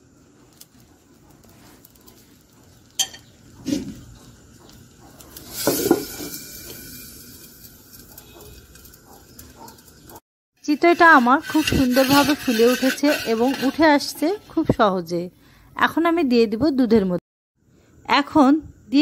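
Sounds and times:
batter sizzling in a pan: 0:05.3 - 0:10.0, 0:10.6 - 0:14.6
lid clattering on clay pan: 0:05.5 - 0:06.4, 0:10.7 - 0:14.5.

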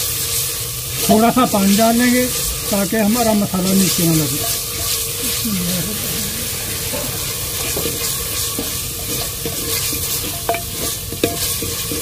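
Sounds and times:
food sizzling in oil: 0:00.0 - 0:12.0
wooden spoon scraping pot: 0:06.7 - 0:12.0.

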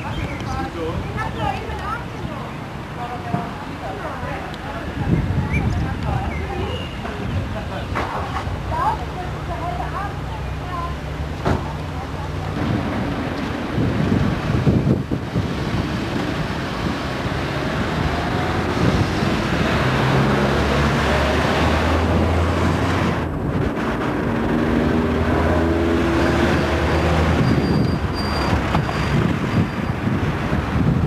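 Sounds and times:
wind on microphone: 0:04.4 - 0:09.0, 0:12.4 - 0:31.0.

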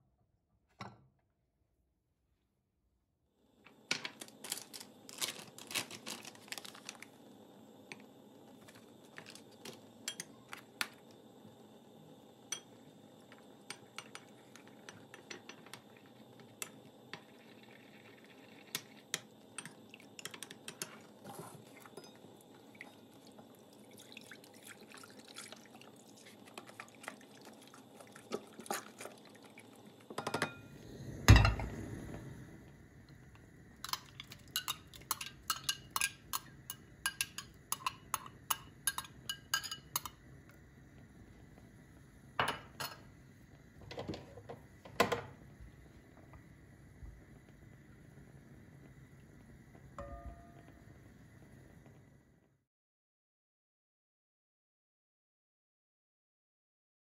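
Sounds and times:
milk pouring into a pot: 0:13.2 - 0:30.2
spoon stirring in glass bowl: 0:13.7 - 0:15.8, 0:18.5 - 0:22.3, 0:33.8 - 0:40.2
metal spoon clicking on glass bowl: 0:34.6 - 0:40.2
pot thud on cooktop: 0:50.0 - 0:50.6.

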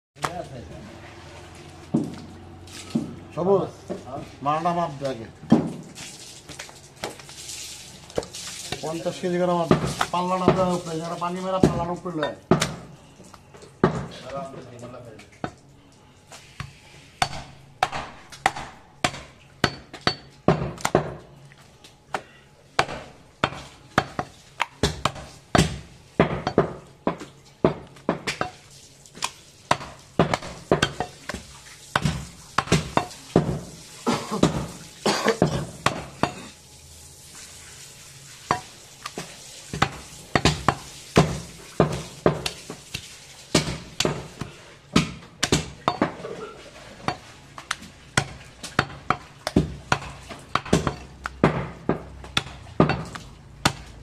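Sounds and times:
cleaver chopping on wooden block: 0:12.5 - 0:12.9, 0:16.6 - 0:21.2, 0:22.8 - 0:28.6, 0:29.2 - 0:31.4, 0:32.0 - 0:33.6, 0:35.4 - 0:36.4, 0:39.8 - 0:46.2, 0:47.1 - 0:54.0.

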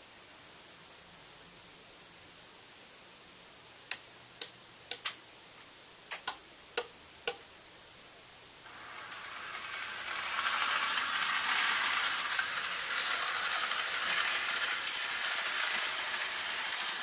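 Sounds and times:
sharp electrical switching clicks: 0:03.9 - 0:05.2, 0:06.1 - 0:07.4
model train rattling along track: 0:08.7 - 0:17.0.

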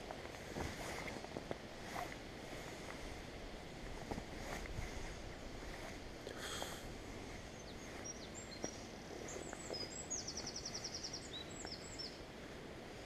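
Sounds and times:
steady background hiss: 0:00.0 - 0:13.0
songbird singing trill: 0:07.4 - 0:12.3.

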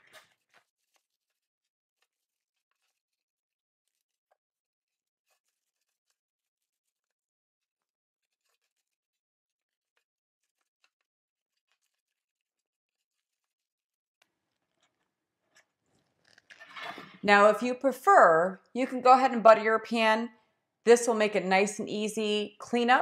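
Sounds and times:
paper rustling: 0:00.0 - 0:03.2, 0:03.8 - 0:17.2.

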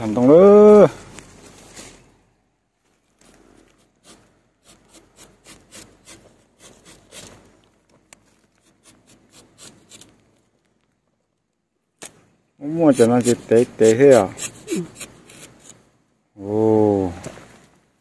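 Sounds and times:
knife scraping tree bark: 0:03.2 - 0:10.4, 0:12.0 - 0:15.9.

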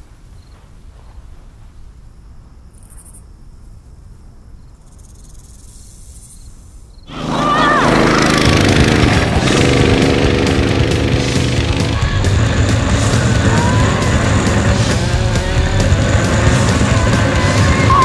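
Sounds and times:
small petrol engine running: 0:07.1 - 0:18.0.

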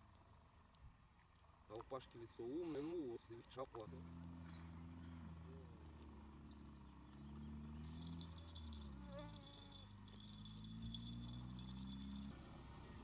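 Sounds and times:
distant vehicle engine humming: 0:02.4 - 0:13.0
insects chirping: 0:03.8 - 0:13.0.

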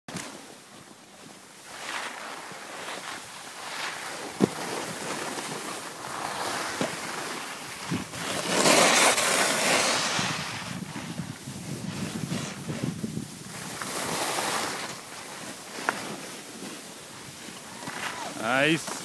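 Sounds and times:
snowboards scraping snow: 0:00.1 - 0:19.0
wind on microphone: 0:07.6 - 0:08.5, 0:09.8 - 0:15.0.

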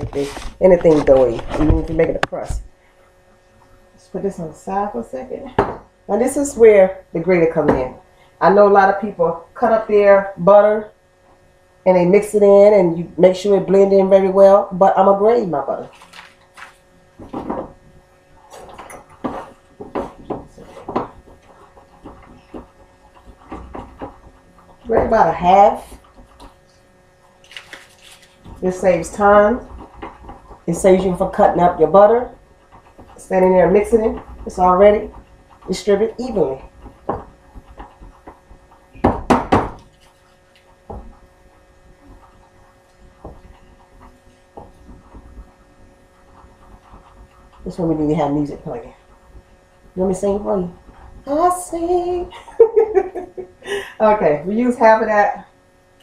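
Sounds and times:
steady faint hum: 0:00.0 - 0:56.0
butter grated on metal grater: 0:18.5 - 0:53.4.

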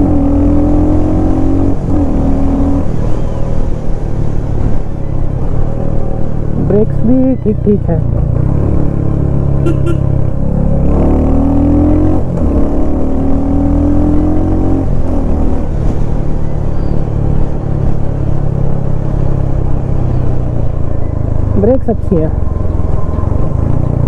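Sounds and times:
motorcycle engine accelerating: 0:00.0 - 0:06.9, 0:07.6 - 0:24.0.

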